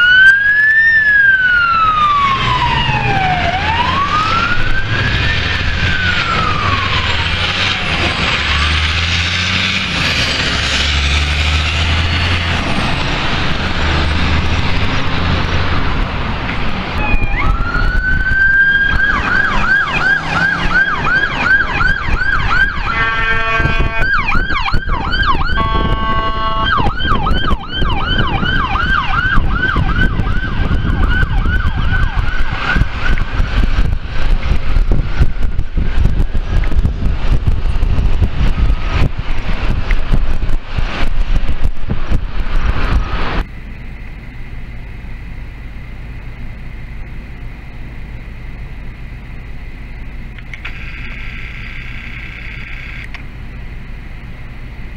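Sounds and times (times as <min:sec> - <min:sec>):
ambulance electronic siren yelping: 0:00.0 - 0:08.8, 0:17.0 - 0:33.3, 0:50.5 - 0:53.2
fire engine wail siren: 0:00.0 - 0:36.8, 0:50.3 - 0:53.2
horn blasts: 0:22.8 - 0:24.4, 0:25.5 - 0:26.9.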